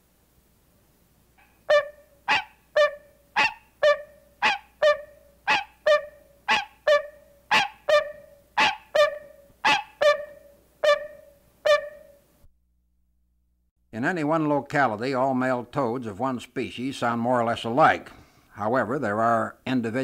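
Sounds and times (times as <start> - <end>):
treefrogs barking: 1.6 - 9.0, 9.6 - 10.0.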